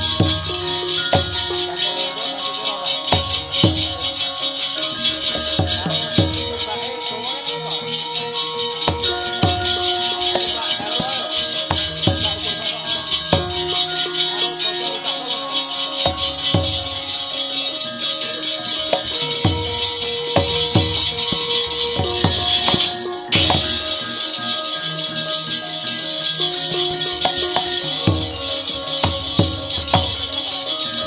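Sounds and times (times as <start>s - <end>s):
metallic shimmer: 0.0s - 31.0s
ringing metallophone tones: 0.0s - 31.0s
low drum strokes: 8.7s - 14.2s.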